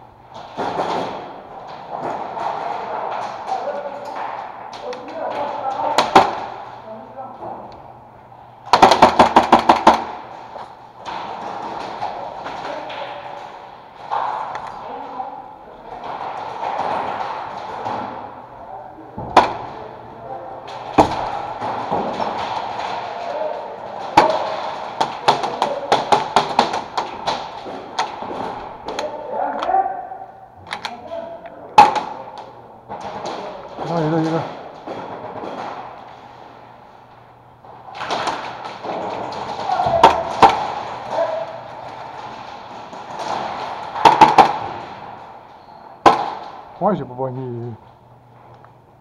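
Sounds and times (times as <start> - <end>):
airsoft guns firing: 0.4 - 3.5, 5.4 - 6.8, 8.6 - 14.6, 20.6 - 29.2, 31.8 - 36.3, 37.9 - 46.7
airsoft gun automatic fire: 8.7 - 10.2.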